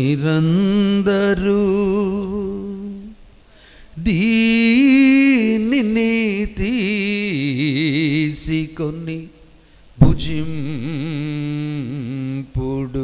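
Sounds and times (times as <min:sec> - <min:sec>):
man chanting: 0:04.0 - 0:13.0.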